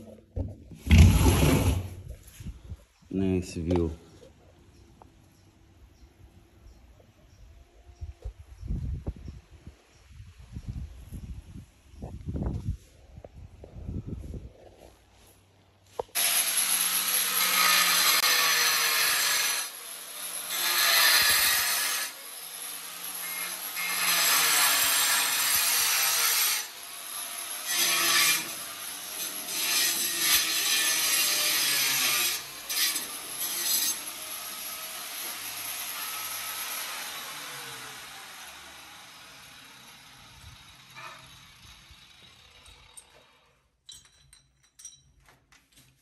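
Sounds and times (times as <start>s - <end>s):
angle grinder cutting concrete: 16.2s - 43.4s.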